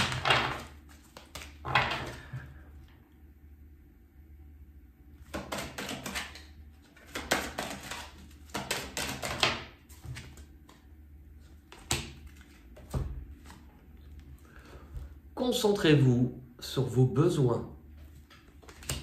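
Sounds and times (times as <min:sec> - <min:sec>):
cards being shuffled: 0:00.0 - 0:02.4, 0:05.2 - 0:14.3, 0:18.0 - 0:19.0.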